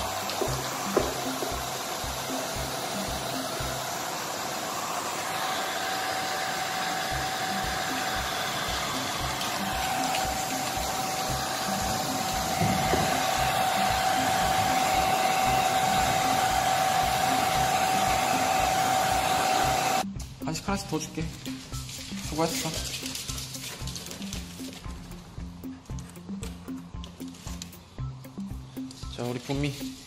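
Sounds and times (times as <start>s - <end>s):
hair dryer blowing: 0.0s - 20.1s.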